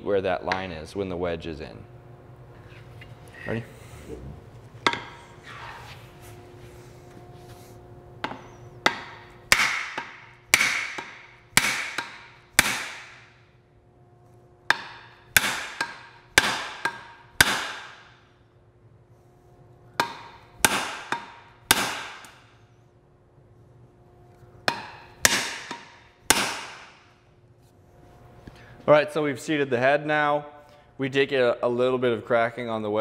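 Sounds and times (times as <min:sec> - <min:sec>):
hammer striking axe handle: 0:08.2 - 0:13.3, 0:14.7 - 0:18.0, 0:20.0 - 0:22.4, 0:24.6 - 0:27.0.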